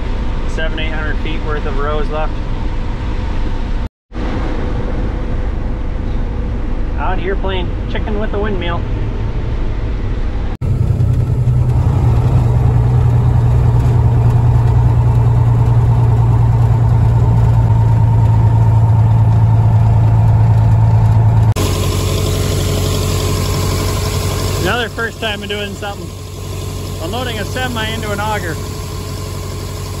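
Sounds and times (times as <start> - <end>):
truck diesel engine drone: 0.0 - 30.0
engine idling: 10.6 - 30.0.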